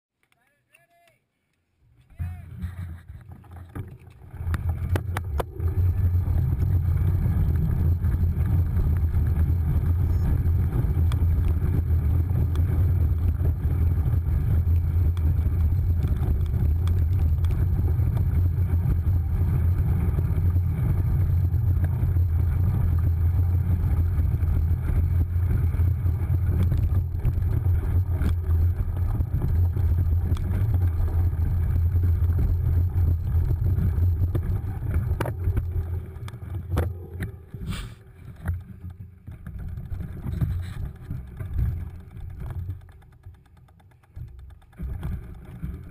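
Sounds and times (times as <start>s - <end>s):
bike riding vibration: 2.2s - 45.9s
sharp clicks: 38.4s - 45.9s.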